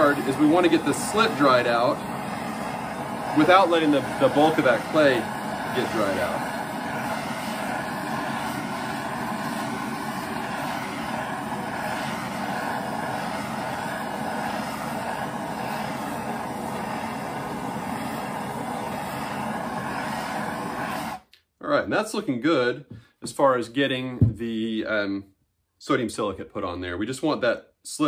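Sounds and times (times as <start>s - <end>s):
propane torch flame rushing: 0.0s - 21.3s.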